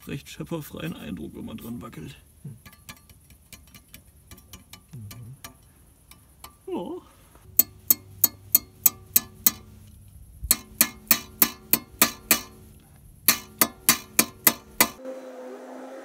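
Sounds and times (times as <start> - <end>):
metal tool knocking on sheet metal: 7.6 - 9.7, 10.5 - 12.6, 13.3 - 15.0.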